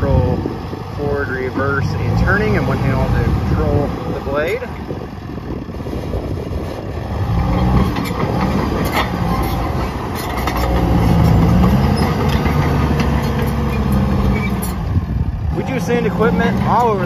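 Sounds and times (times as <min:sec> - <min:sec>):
bulldozer diesel engine: 0:00.0 - 0:17.0
steel tracks clanking: 0:07.7 - 0:14.8.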